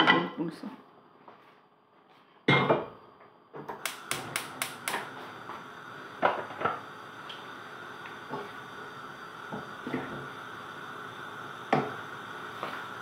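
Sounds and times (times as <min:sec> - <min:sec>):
gas flame hissing: 0:03.6 - 0:13.0
gas stove igniter clicking: 0:03.7 - 0:13.0.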